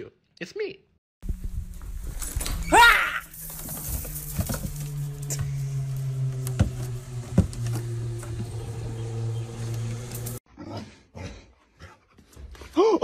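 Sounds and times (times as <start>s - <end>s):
steady low hum: 1.2s - 10.4s.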